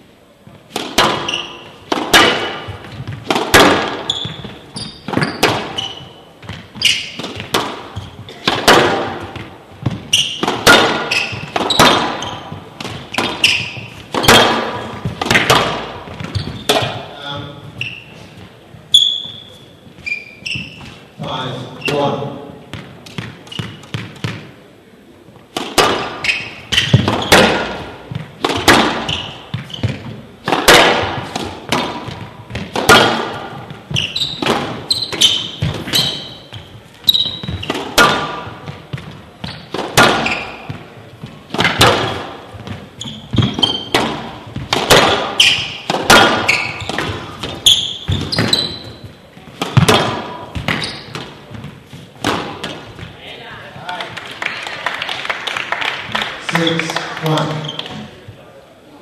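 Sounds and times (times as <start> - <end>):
shoes squeaking on court floor: 0.4 - 24.6, 25.2 - 54.1, 56.6 - 58.5
squash ball smacks echoing: 0.7 - 17.5, 25.5 - 53.2.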